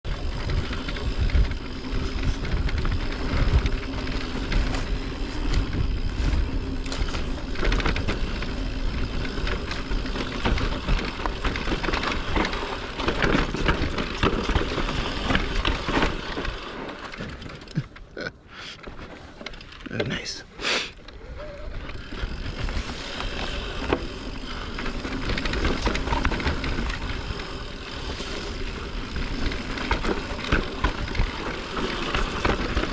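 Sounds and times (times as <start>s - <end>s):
bike rattling over bumps: 0.1s - 18.2s, 18.8s - 32.9s
bike tyre noise: 0.1s - 32.9s.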